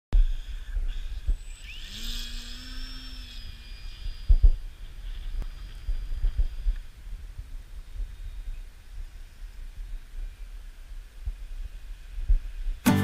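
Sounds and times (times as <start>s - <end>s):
electric motor whining: 0.2s - 6.9s
wind buffeting microphone: 0.2s - 12.9s.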